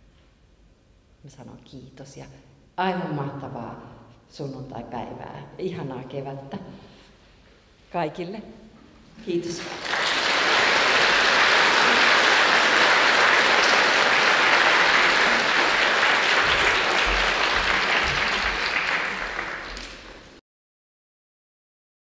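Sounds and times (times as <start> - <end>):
audience applauding: 9.4 - 20.4.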